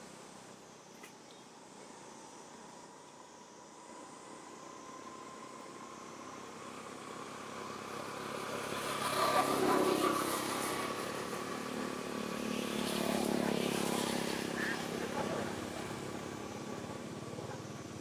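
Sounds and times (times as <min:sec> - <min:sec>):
vehicle engine passing: 0:06.7 - 0:18.0.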